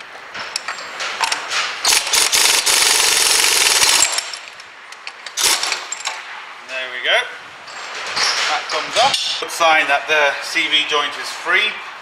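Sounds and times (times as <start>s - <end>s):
pneumatic impact wrench rattling: 0.5s - 6.2s.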